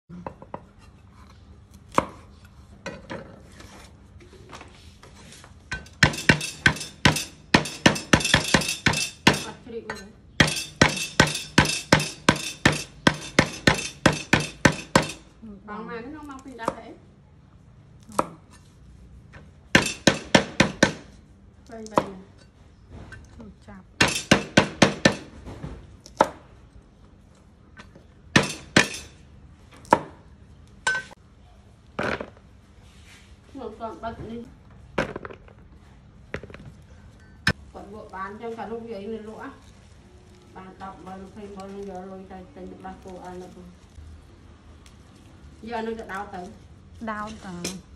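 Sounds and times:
cleaver chopping on wooden board: 0:10.4 - 0:15.2, 0:19.8 - 0:21.1.

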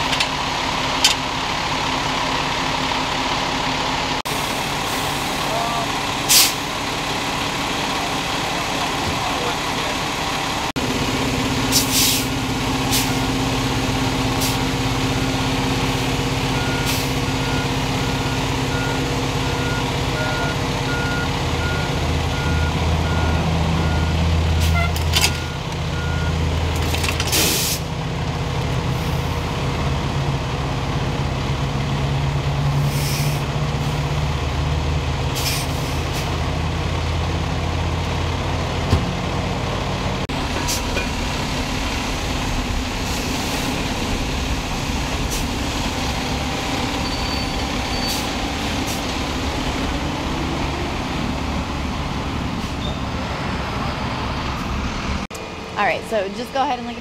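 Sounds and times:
diesel engine idling: 0:00.0 - 0:57.0
short air hisses: 0:11.7 - 0:12.3, 0:27.3 - 0:27.9.

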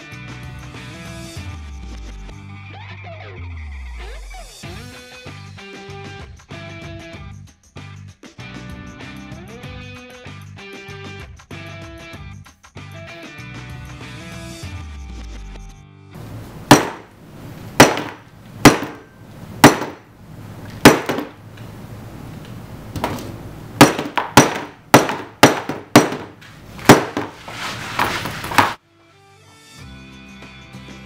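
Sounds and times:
hammer striking smartphone: 0:16.6 - 0:17.1, 0:17.8 - 0:20.1, 0:20.8 - 0:21.4, 0:23.8 - 0:27.4.

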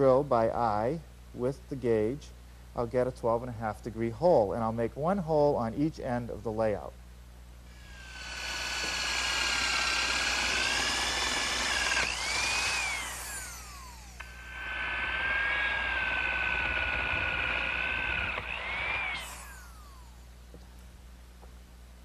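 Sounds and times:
electric drill boring plywood: 0:07.7 - 0:20.2.

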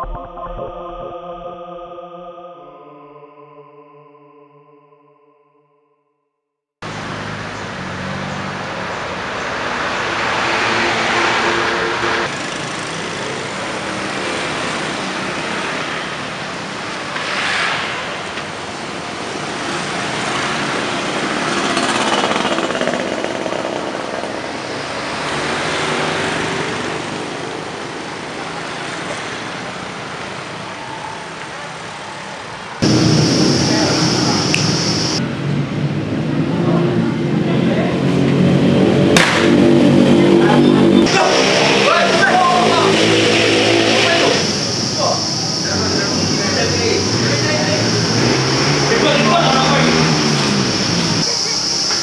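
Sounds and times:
motor vehicles passing: 0:06.8 - 0:52.0
traffic hum: 0:06.8 - 0:52.0.

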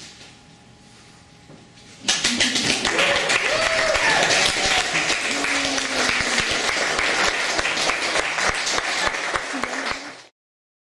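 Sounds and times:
audience applauding: 0:02.1 - 0:10.3
voices among clapping: 0:02.1 - 0:10.3.

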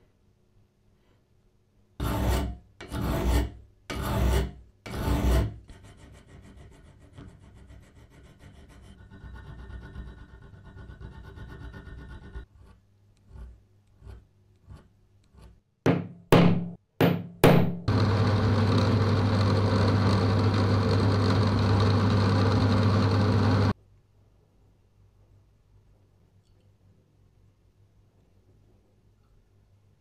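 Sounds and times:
hand file rasping on metal: 0:02.0 - 0:15.6
drill press humming: 0:17.9 - 0:23.7.

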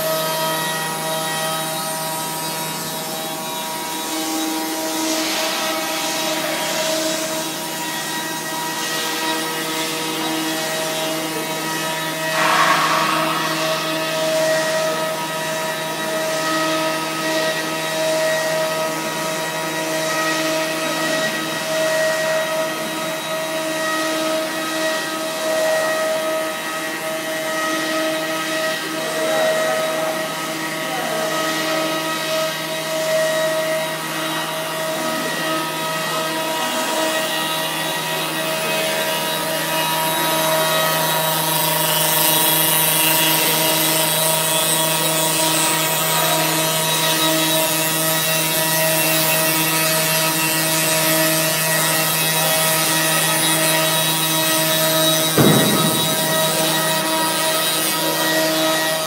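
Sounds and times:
router spindle whining: 0:00.0 - 0:59.0.

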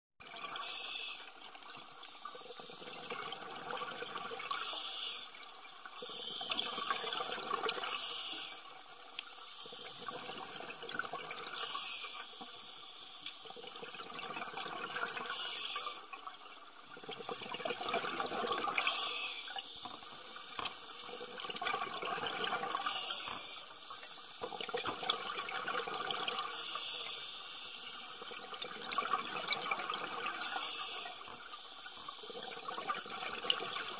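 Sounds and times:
scuba regulator inhale hiss: 0:00.6 - 0:01.4, 0:04.5 - 0:05.4, 0:06.0 - 0:07.2, 0:07.8 - 0:10.2, 0:11.5 - 0:13.6, 0:15.2 - 0:16.1, 0:18.8 - 0:21.3, 0:22.6 - 0:24.7, 0:26.4 - 0:28.2, 0:30.3 - 0:33.0
exhaled bubbles burbling: 0:02.8 - 0:04.6, 0:13.6 - 0:15.3, 0:17.0 - 0:19.0, 0:21.1 - 0:23.1, 0:24.6 - 0:26.5.

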